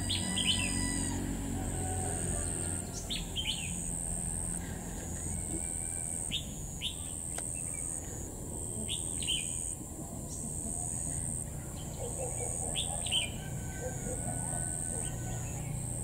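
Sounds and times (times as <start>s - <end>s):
high-pitched whine: 0.0s - 16.0s
bird chirping: 2.4s - 8.2s, 8.8s - 16.0s.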